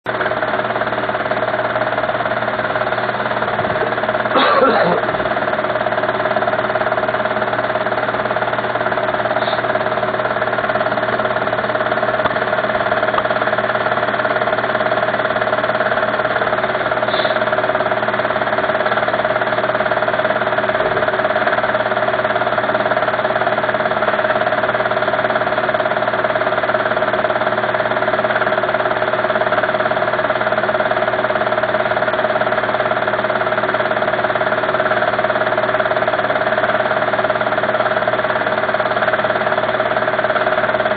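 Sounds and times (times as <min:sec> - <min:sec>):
motor humming steadily: 0:00.0 - 0:40.9.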